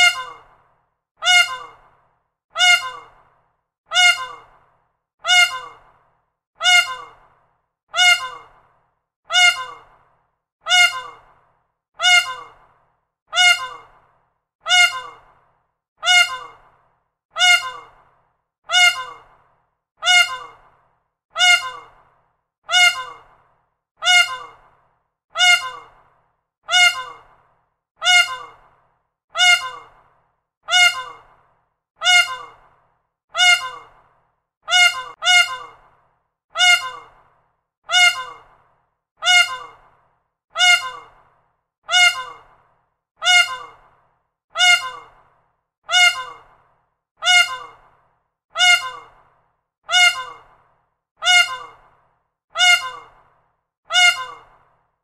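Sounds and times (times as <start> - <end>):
peacock calling: 0.0 - 0.5, 1.2 - 1.8, 2.6 - 3.2, 3.9 - 4.5, 5.2 - 5.8, 6.6 - 7.2, 8.0 - 8.5, 9.3 - 9.9, 10.7 - 11.3, 12.0 - 12.6, 13.4 - 13.9, 14.7 - 15.3, 16.0 - 16.6, 17.4 - 18.0, 18.7 - 19.3, 20.0 - 20.6, 21.4 - 22.0, 22.7 - 23.3, 24.0 - 24.6, 25.4 - 26.0, 26.7 - 27.3, 28.0 - 28.6, 29.4 - 30.0, 30.7 - 31.3, 32.0 - 32.6, 33.4 - 34.0, 34.7 - 35.8, 36.6 - 37.2, 37.9 - 38.5, 39.2 - 39.8, 40.6 - 41.2, 41.9 - 42.5, 43.2 - 43.8, 44.6 - 45.2, 45.9 - 46.5, 47.2 - 47.8, 48.6 - 49.2, 49.9 - 50.5, 51.2 - 51.8, 52.6 - 53.2, 53.9 - 54.6.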